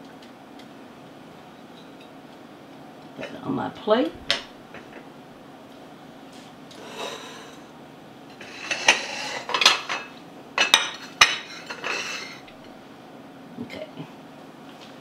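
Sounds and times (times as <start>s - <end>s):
plates clinking: 4.3s - 5.1s, 8.3s - 12.7s
plates scraping on countertop: 6.3s - 7.7s, 8.3s - 12.6s.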